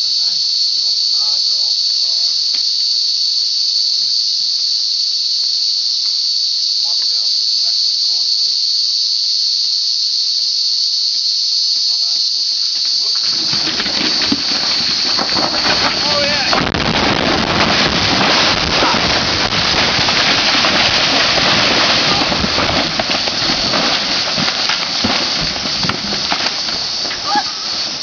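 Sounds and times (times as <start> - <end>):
insects droning: 0.0 - 28.0
rushing noise with crackles: 13.4 - 28.0.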